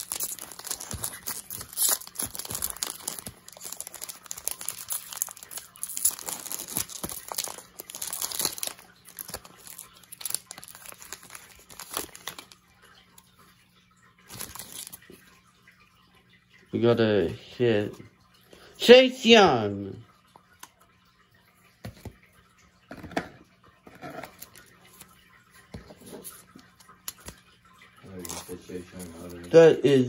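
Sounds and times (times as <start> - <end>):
foil wrapper tearing and crinkling: 0.0 - 12.6, 14.3 - 15.0.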